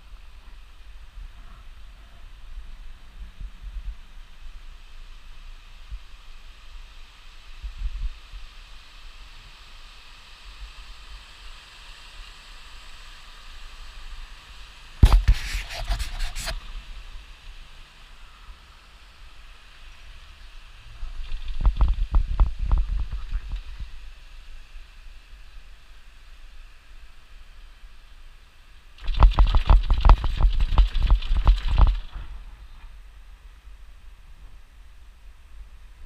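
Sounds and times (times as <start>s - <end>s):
wind hissing on microphone: 0.0s - 36.0s
scratching and rubbing on microphone: 15.0s - 16.7s, 21.0s - 23.9s, 29.0s - 32.3s.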